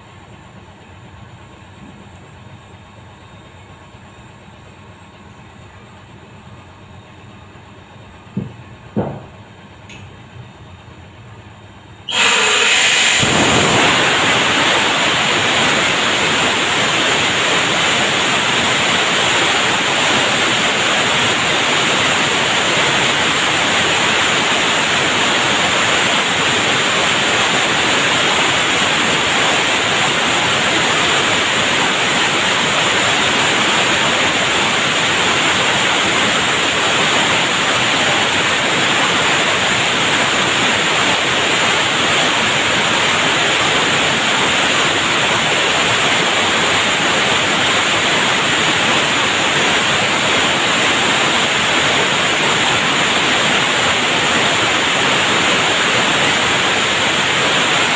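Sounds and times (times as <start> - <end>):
short knocks: 8.4 - 9.4
gas hissing through a valve: 12.1 - 57.9.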